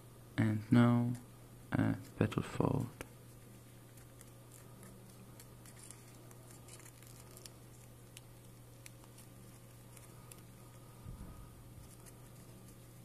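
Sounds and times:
steady low hum: 0:00.0 - 0:13.0
paper crinkling: 0:02.0 - 0:13.0.

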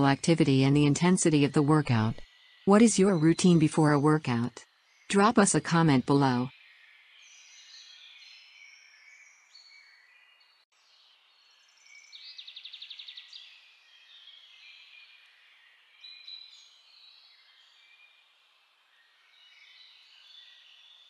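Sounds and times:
songbirds chirping and warbling: 0:01.3 - 0:03.6, 0:06.5 - 0:18.2, 0:18.8 - 0:21.0.

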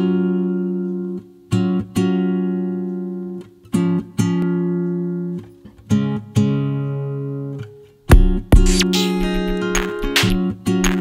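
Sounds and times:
plucked guitar chords: 0:08.1 - 0:11.0.

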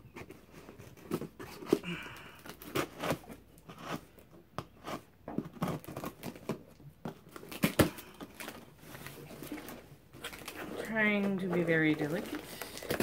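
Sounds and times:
scissors cutting cardboard: 0:02.4 - 0:06.6
paper crinkling: 0:05.5 - 0:13.0.

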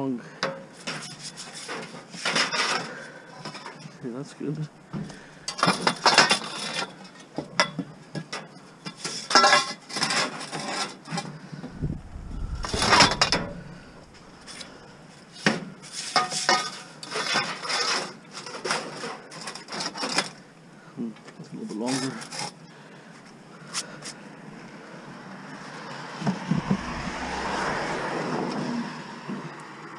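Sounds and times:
metal pipes scraping and clanking: 0:11.6 - 0:14.9.

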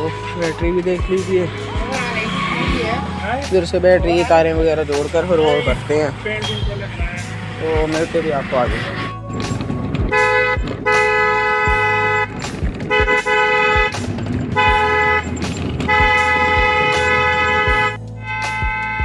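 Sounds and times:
scooter engine hum: 0:00.0 - 0:19.0.

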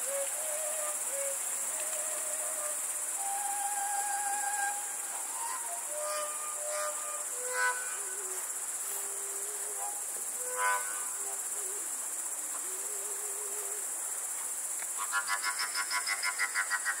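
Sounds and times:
overtone flute melody: 0:00.0 - 0:11.8
crickets chirring: 0:00.0 - 0:17.0.

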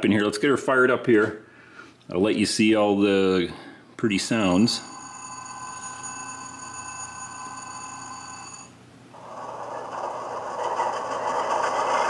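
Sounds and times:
steady whine: 0:04.1 - 0:12.0.

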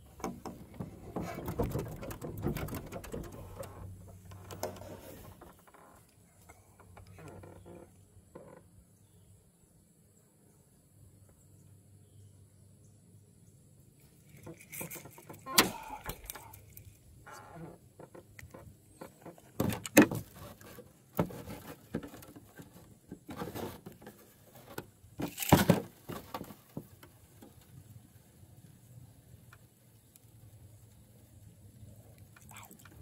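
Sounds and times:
fishing tackle clicks and rattles: 0:00.2 - 0:04.8, 0:14.2 - 0:17.0.

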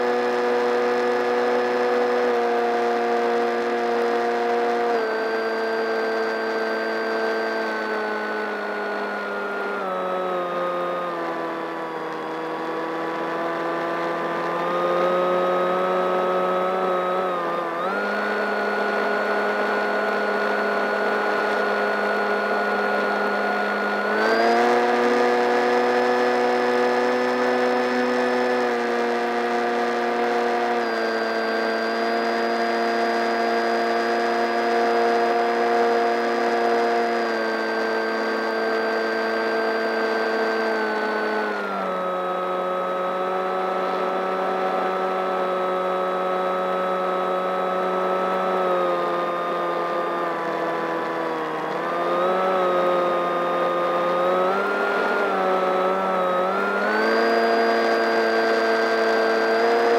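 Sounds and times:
electric motor and propeller whine: 0:00.0 - 0:59.9.

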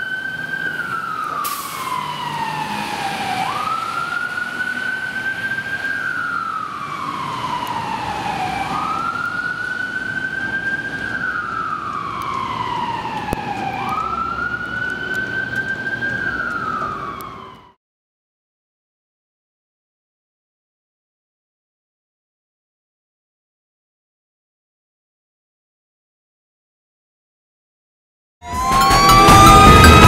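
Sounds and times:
fire truck siren wailing: 0:00.0 - 0:17.8, 0:28.4 - 0:30.0.

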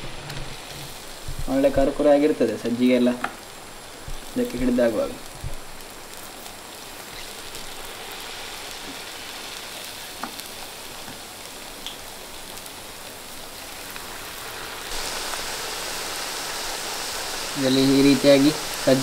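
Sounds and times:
deep-frying sizzle: 0:00.0 - 0:19.0.

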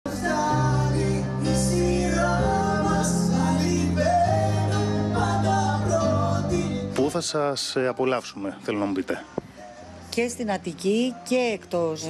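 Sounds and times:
woman and man singing: 0:00.1 - 0:07.1
keyboard and bass backing: 0:00.1 - 0:12.0.

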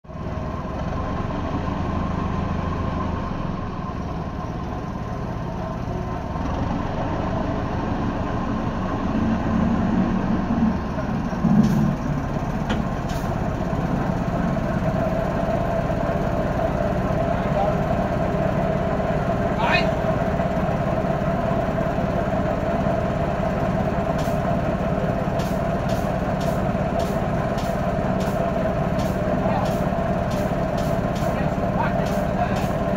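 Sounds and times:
locomotive engine running: 0:00.0 - 0:32.9
short metallic clicks: 0:25.4 - 0:28.4, 0:29.0 - 0:31.4.

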